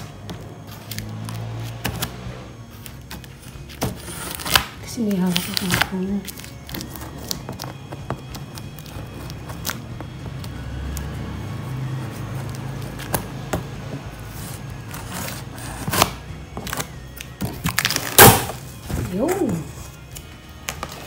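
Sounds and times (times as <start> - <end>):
scissors cutting cardboard tape: 0.0 - 21.0.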